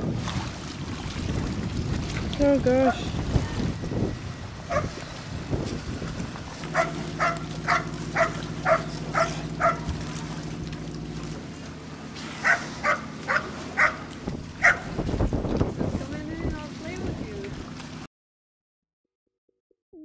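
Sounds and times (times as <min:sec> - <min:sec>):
motor humming: 0:00.8 - 0:18.0
dog barking: 0:04.7 - 0:05.0, 0:06.7 - 0:09.9, 0:12.4 - 0:14.0, 0:14.6 - 0:14.9.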